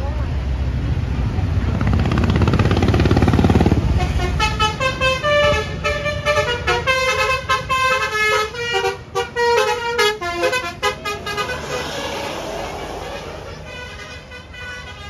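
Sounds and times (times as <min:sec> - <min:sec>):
motorcycle passing: 0:01.6 - 0:04.0, 0:10.5 - 0:14.3
bus horn playing tune: 0:04.0 - 0:11.6, 0:13.7 - 0:15.0.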